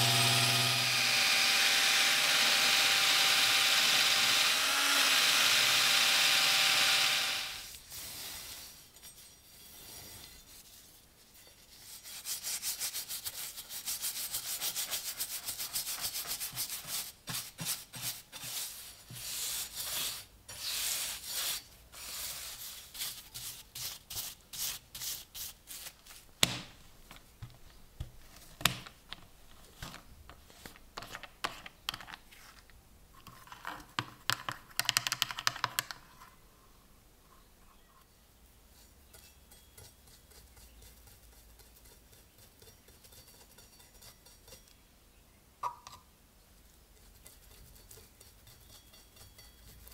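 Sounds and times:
drill spinning wire brush: 0:00.0 - 0:07.8
rubbing strokes on steel: 0:38.8 - 0:44.7, 0:46.9 - 0:49.9.

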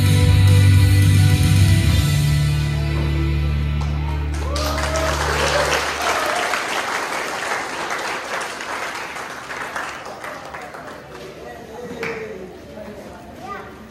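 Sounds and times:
audience clapping: 0:02.8 - 0:12.4.

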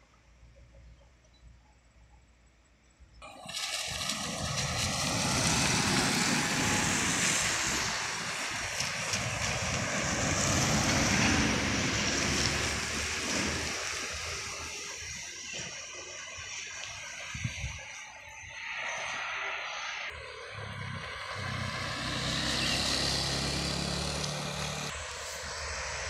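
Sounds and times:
truck driving past: 0:03.6 - 0:14.9, 0:19.0 - 0:26.0.

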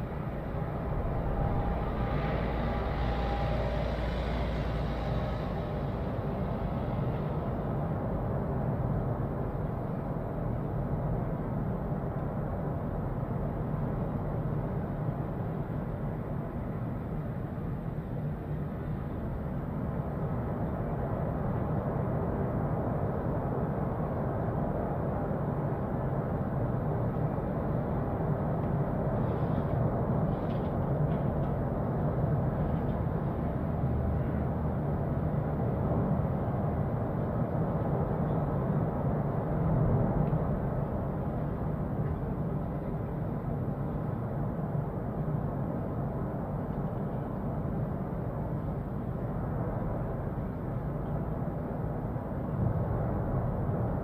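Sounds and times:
distant volcano rumble: 0:00.0 - 0:10.4.

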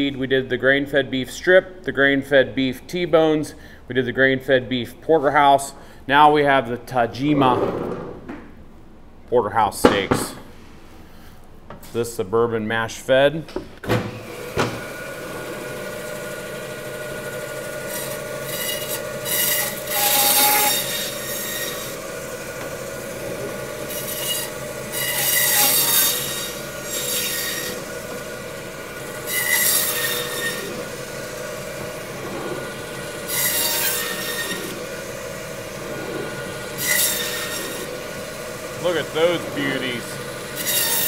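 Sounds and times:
band saw humming: 0:14.2 - 0:41.0
saw blade screeching through bone: 0:17.8 - 0:22.1, 0:23.8 - 0:28.0, 0:29.0 - 0:38.0, 0:38.8 - 0:41.0.

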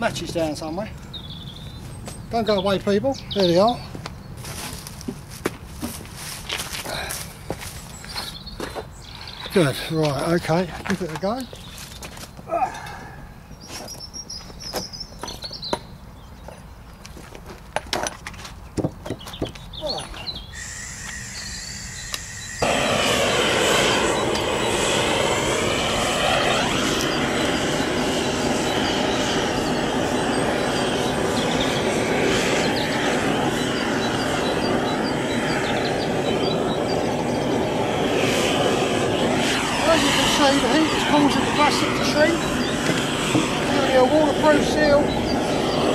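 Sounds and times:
blowtorch burning: 0:19.3 - 0:45.9.

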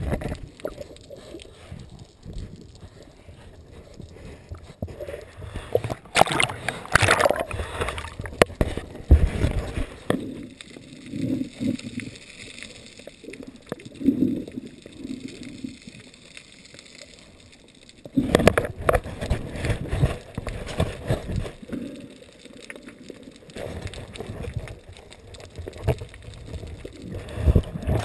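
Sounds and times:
seawater sloshing and gurgling: 0:04.7 - 0:12.1.

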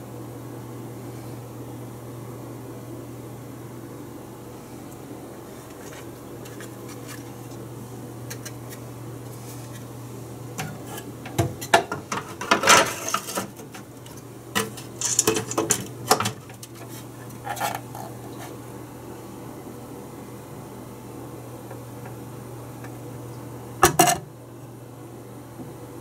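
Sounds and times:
steady low hum: 0:00.0 - 0:26.0
clicks knocks and scrapes on metal: 0:10.6 - 0:18.6.

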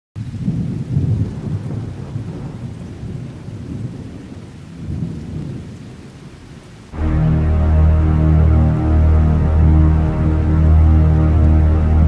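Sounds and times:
rolling thunder: 0:00.3 - 0:05.8.

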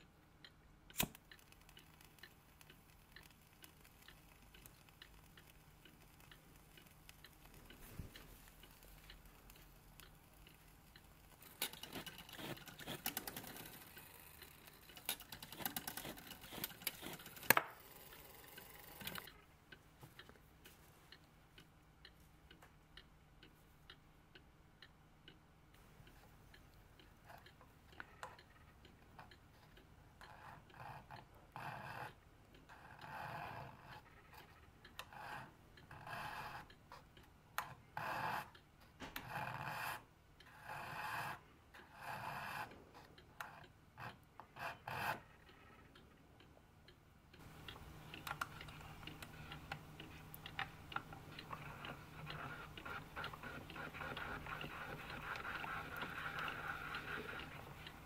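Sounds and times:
light clicks and ticks: 0:00.0 - 0:58.0
sharp click: 0:00.9 - 0:01.8
scraping of clock part: 0:00.9 - 0:19.4.

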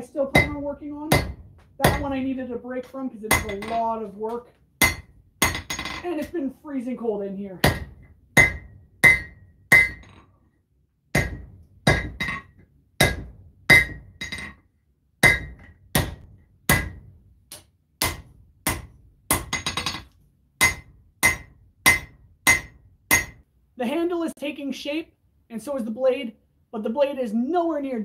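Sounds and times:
hammer striking steel on anvil: 0:00.4 - 0:02.1, 0:03.3 - 0:03.9, 0:04.8 - 0:06.0, 0:07.6 - 0:10.2, 0:11.2 - 0:14.5, 0:15.2 - 0:17.1, 0:18.0 - 0:20.0, 0:20.6 - 0:23.4.

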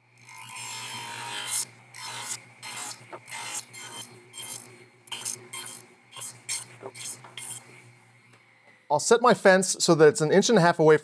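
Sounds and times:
table saw motor hum: 0:00.0 - 0:08.6
saw blade cutting wood: 0:00.2 - 0:07.9.

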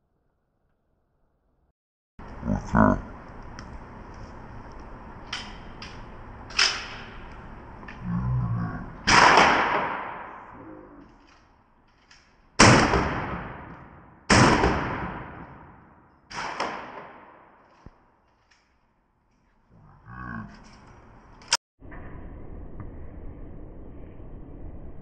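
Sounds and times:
shotgun shots echoing: 0:09.0 - 0:10.6, 0:12.6 - 0:17.6.

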